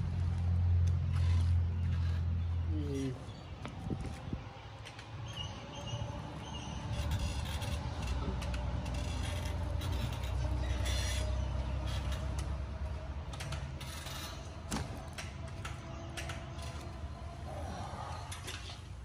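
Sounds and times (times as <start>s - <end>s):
wheelchair rolling rumble: 6.4s - 18.9s.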